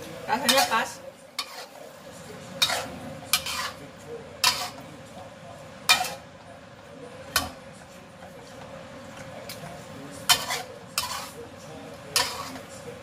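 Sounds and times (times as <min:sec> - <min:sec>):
metal spatula scraping wok: 0:00.0 - 0:05.2, 0:05.8 - 0:06.3, 0:09.2 - 0:13.0.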